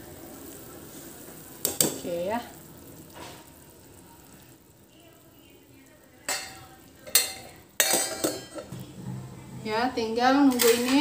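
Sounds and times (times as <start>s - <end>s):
metal cookware clattering: 6.3s - 8.8s, 10.2s - 11.0s.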